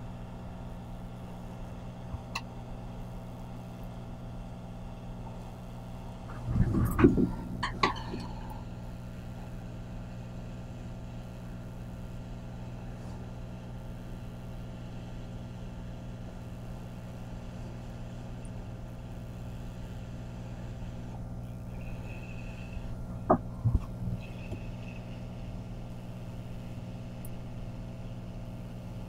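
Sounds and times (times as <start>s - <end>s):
hot air station humming: 0.0s - 29.0s.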